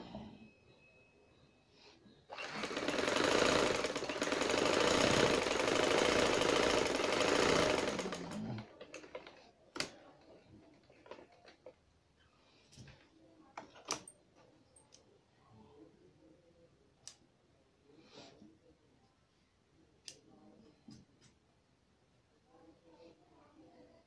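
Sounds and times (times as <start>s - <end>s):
sewing machine running: 2.3s - 9.4s.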